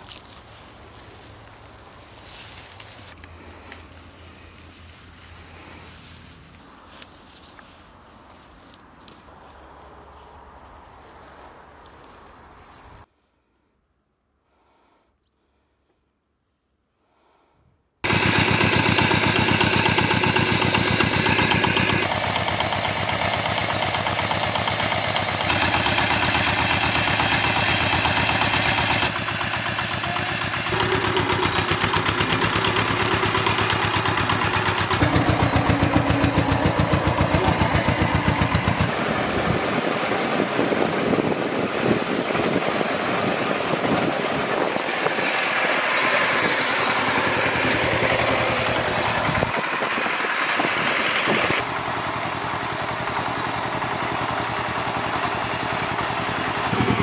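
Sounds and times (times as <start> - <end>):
single-cylinder engine running: 18.0 - 57.0.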